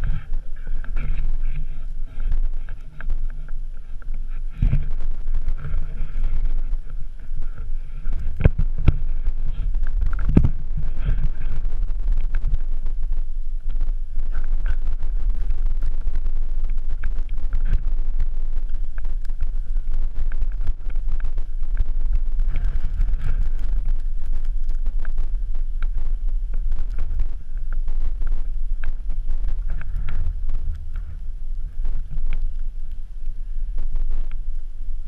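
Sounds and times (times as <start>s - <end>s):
wind buffeting microphone: 0.0s - 32.5s.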